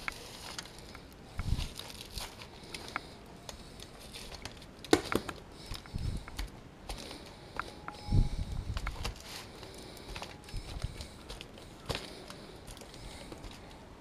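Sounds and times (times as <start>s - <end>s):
foil crinkling: 0.0s - 5.9s.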